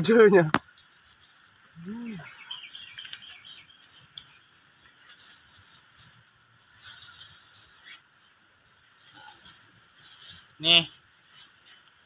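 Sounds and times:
small crackling clicks: 0.0s - 1.7s, 2.6s - 8.0s, 11.3s - 12.0s.

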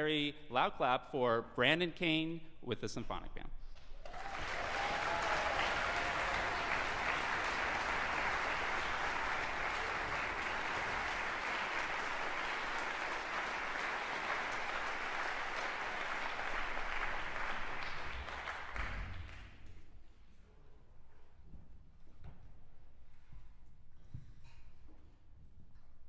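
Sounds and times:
audience applauding: 4.0s - 19.5s.

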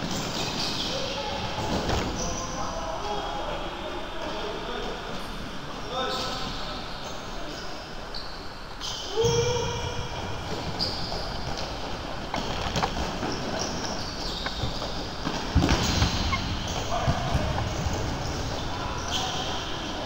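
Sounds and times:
voices in large hall: 0.0s - 20.0s
shoes squeaking on floor: 1.6s - 2.6s, 8.1s - 9.8s, 10.4s - 20.0s.

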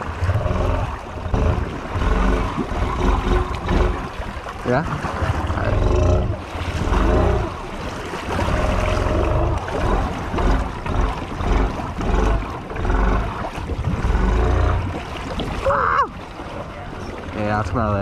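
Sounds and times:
water splashing and churning: 0.0s - 18.0s
atv engine revving: 8.4s - 13.4s.

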